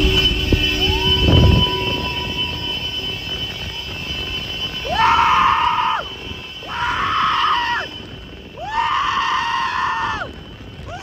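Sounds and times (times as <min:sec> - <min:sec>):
high whooping shouts: 0:04.8 - 0:11.0.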